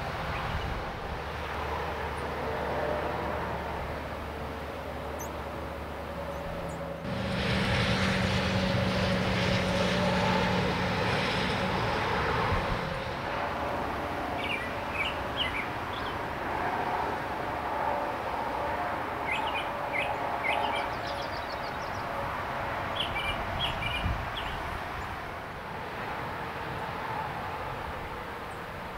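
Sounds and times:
highway traffic rushing: 0:00.0 - 0:28.9.

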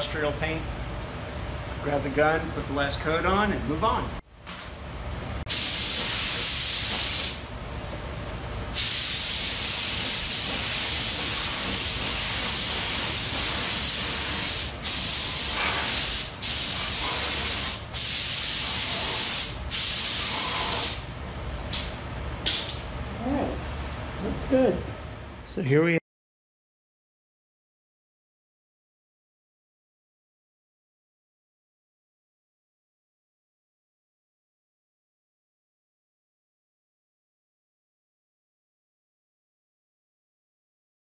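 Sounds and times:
paint spray gun hissing: 0:05.5 - 0:07.4, 0:08.8 - 0:21.1.

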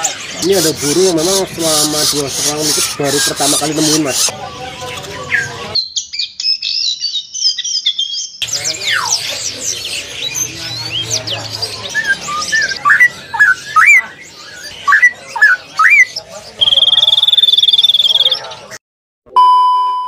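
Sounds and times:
caged birds calling: 0:00.0 - 0:18.8
bird whistling loud phrases: 0:00.4 - 0:04.3, 0:10.2 - 0:18.6
songbird twittering: 0:05.2 - 0:18.8.

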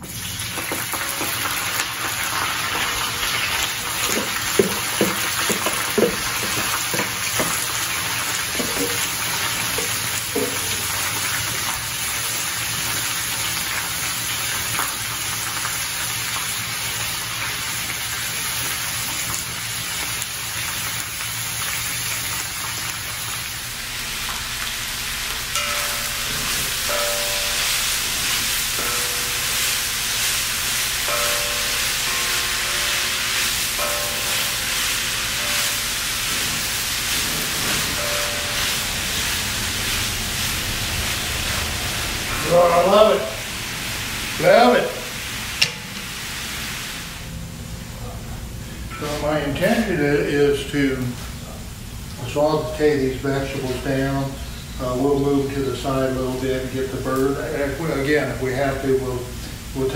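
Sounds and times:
vegetables sizzling in oil: 0:00.0 - 0:47.6
wooden spatula stirring: 0:03.6 - 0:10.8.

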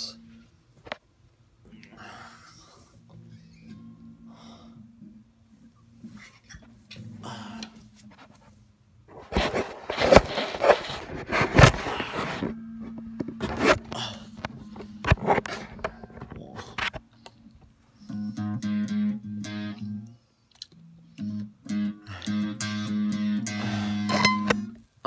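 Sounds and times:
electric guitar choppy low note: 0:21.2 - 0:24.8.

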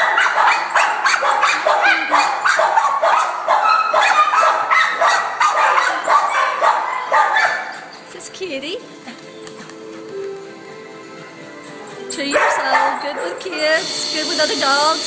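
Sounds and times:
dog barking: 0:00.0 - 0:07.8, 0:12.3 - 0:13.6.

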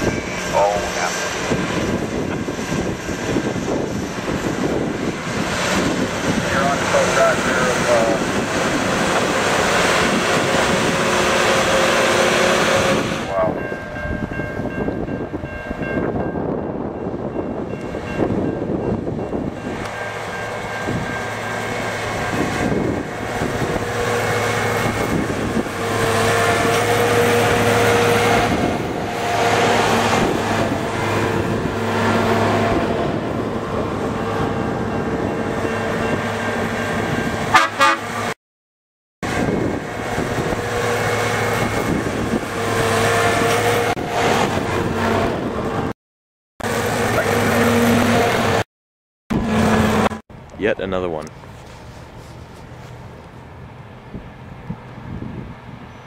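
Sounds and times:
track machine horns blasting: 0:37.5 - 0:38.3.

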